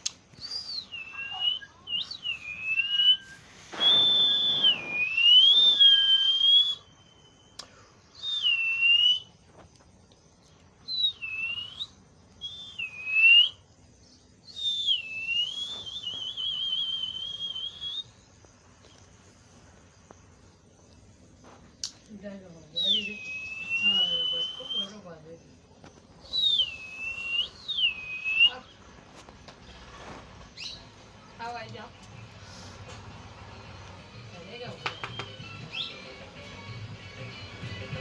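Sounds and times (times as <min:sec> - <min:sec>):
parakeet whistling: 0:00.4 - 0:07.3, 0:22.8 - 0:25.0, 0:26.2 - 0:28.8.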